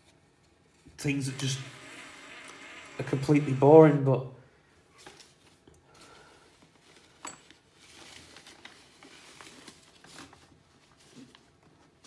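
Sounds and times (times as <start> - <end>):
faint rustling and handling: 0.0 - 1.2, 4.7 - 12.0.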